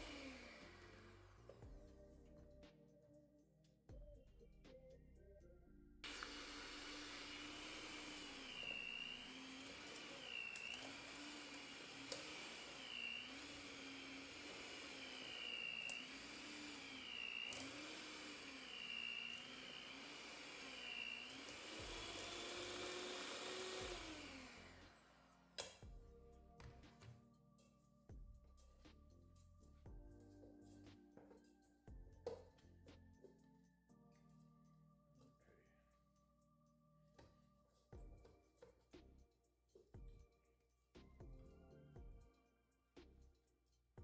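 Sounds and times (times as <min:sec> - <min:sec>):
hand mixer motor whine: 0:00.0 - 0:01.8, 0:06.0 - 0:25.8
mixer clicks: 0:06.1 - 0:25.0.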